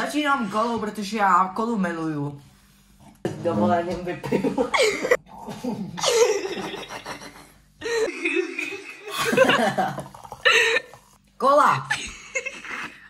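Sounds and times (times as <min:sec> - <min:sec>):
laughter: 0:04.2 - 0:10.0, 0:11.9 - 0:13.0.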